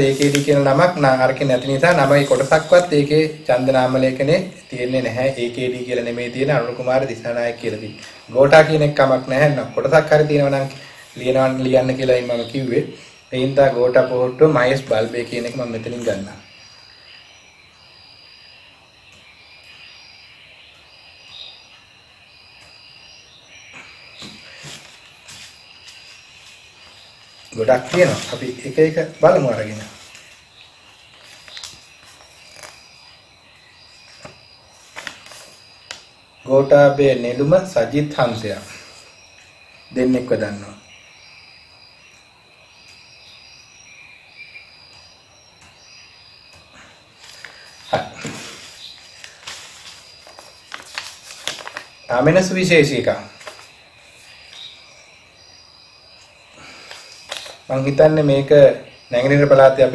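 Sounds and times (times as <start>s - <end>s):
paper rustling: 0.0s - 2.9s, 23.8s - 33.1s, 34.0s - 36.1s, 47.2s - 52.6s, 53.2s - 54.7s, 56.7s - 58.0s
insect chirping in high trills: 0.0s - 59.9s.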